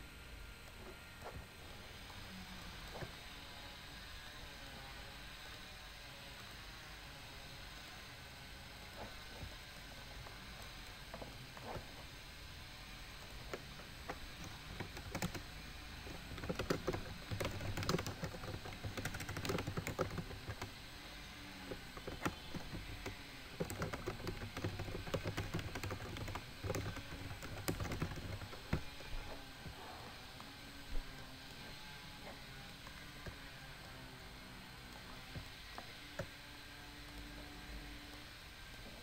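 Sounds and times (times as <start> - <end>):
typing on computer keyboard: 13.2 - 20.8, 21.7 - 28.9.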